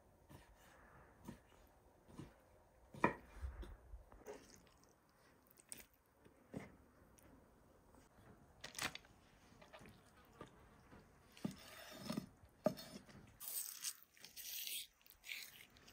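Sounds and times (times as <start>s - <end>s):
knife cutting liver on wooden board: 11.4s - 13.1s.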